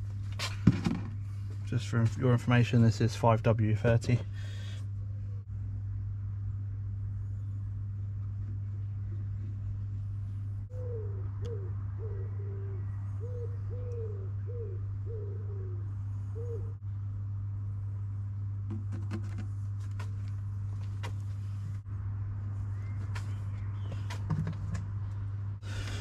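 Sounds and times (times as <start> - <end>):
steady low hum: 0.0 - 26.0
pigeon cooing: 10.7 - 16.8.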